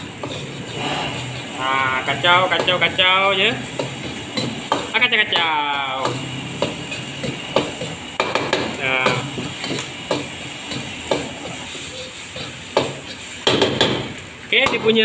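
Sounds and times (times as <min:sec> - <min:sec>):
metal spatula scraping a wok: 0:00.0 - 0:04.7, 0:06.3 - 0:08.0, 0:10.6 - 0:13.4
egg sizzling in oil: 0:00.0 - 0:15.0.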